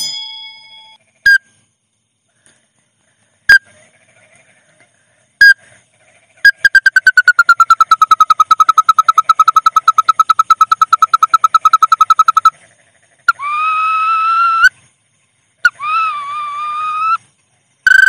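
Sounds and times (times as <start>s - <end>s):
rapid whistled trill: 6.4s - 12.5s, 15.6s - 18.0s.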